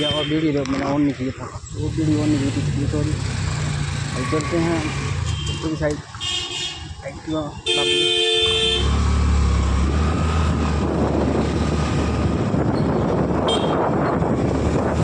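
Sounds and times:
wind noise on microphone: 0:09.7 - 0:15.0.

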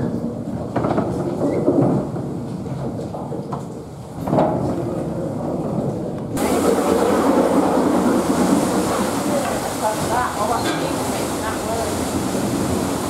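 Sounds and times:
mill machinery rumbling: 0:00.0 - 0:13.0
steam engine running: 0:06.4 - 0:13.0
steam hissing: 0:06.4 - 0:13.0.

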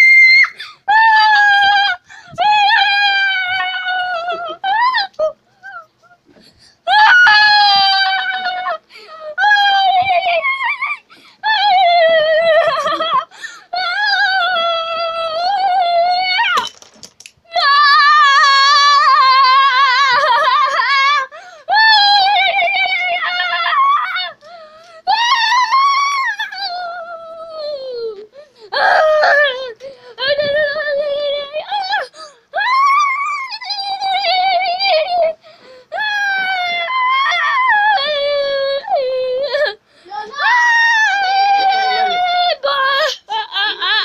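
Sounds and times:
child whining and crying: 0:35.9 - 0:44.0.

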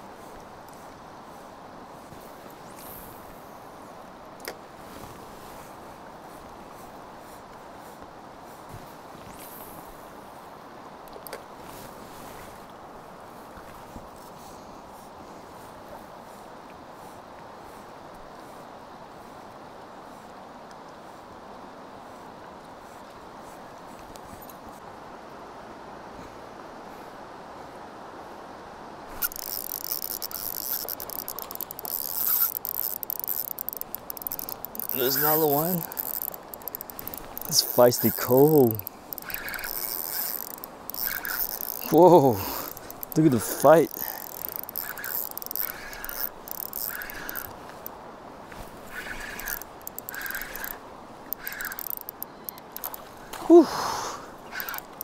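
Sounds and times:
river rushing: 0:24.6 - 0:55.0
fishing reel buzzing and clicking: 0:29.1 - 0:48.0, 0:48.8 - 0:53.1, 0:54.5 - 0:55.0.

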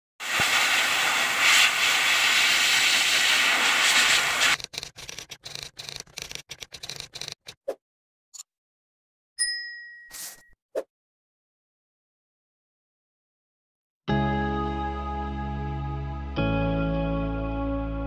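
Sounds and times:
pet grooming blower hissing: 0:00.2 - 0:04.6.

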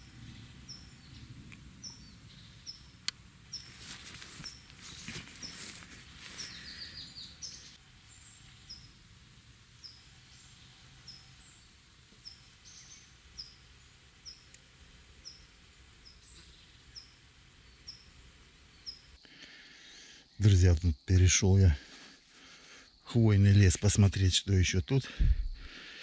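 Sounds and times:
rustling: 0:03.6 - 0:07.0.

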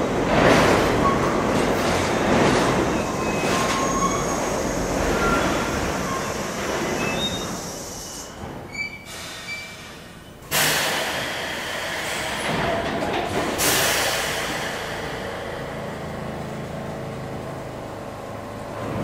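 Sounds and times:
train wheels squealing: 0:02.9 - 0:10.4
hiss and mechanical noise: 0:04.3 - 0:17.7.

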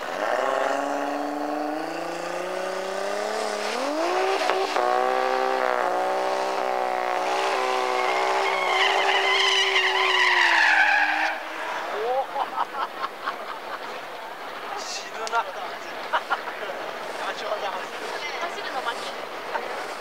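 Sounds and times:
car engine revving: 0:00.0 - 0:11.8
tyre squeal: 0:07.3 - 0:11.6.

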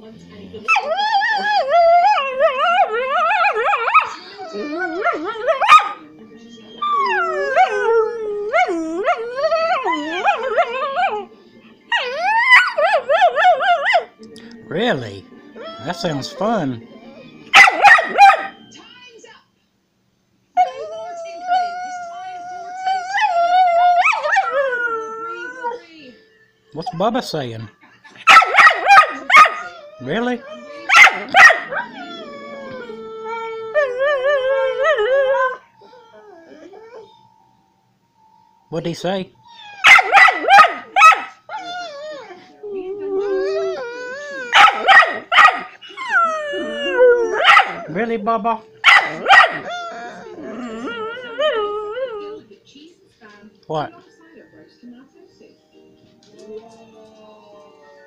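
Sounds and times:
dog whining and howling: 0:00.7 - 0:11.3, 0:11.9 - 0:14.2, 0:15.6 - 0:18.6, 0:20.6 - 0:25.9, 0:28.3 - 0:37.4, 0:39.4 - 0:48.0, 0:48.8 - 0:52.4, 0:56.4 - 0:58.0.

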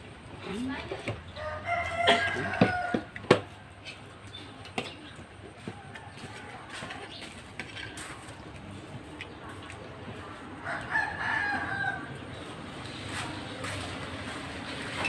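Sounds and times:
rooster crowing: 0:01.4 - 0:03.2, 0:10.6 - 0:12.2.

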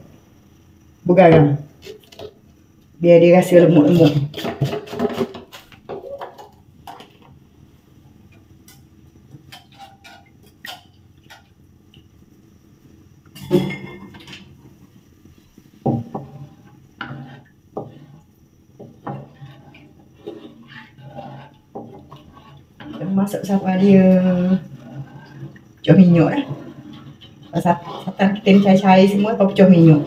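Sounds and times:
spatula scraping frying pan: 0:03.8 - 0:07.3, 0:08.7 - 0:11.5, 0:15.4 - 0:30.0.

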